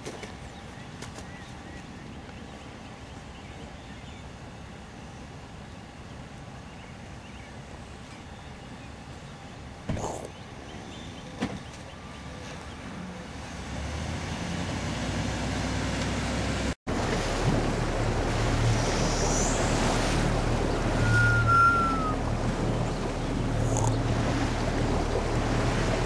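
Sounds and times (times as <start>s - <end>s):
boat motor running: 13.2s - 26.0s
water rushing past hull: 13.4s - 26.0s
wind on microphone: 16.9s - 26.0s.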